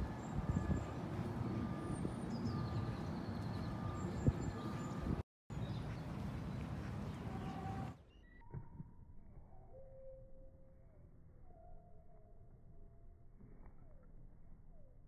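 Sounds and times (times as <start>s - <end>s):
bird chirps: 1.6s - 8.6s.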